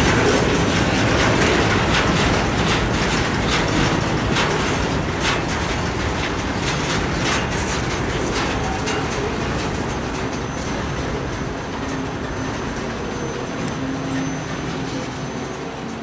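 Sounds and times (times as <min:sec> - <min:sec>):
freight train wheels rumbling on rails: 0:00.0 - 0:16.0
train wheels clickety-clack: 0:00.0 - 0:16.0.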